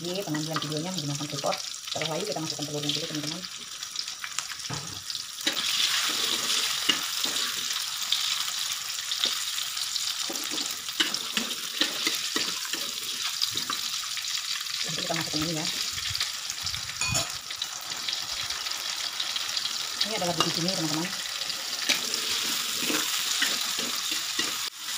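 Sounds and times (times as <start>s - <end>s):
food sizzling in oil: 0.0s - 24.9s
metal spatula scraping wok: 5.4s - 7.8s, 21.4s - 24.7s.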